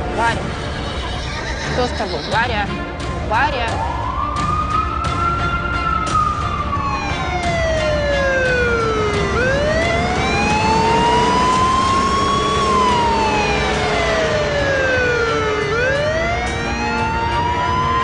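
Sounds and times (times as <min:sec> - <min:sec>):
ambulance siren wailing: 0:03.4 - 0:18.0
vehicle rumble on road: 0:07.6 - 0:18.0.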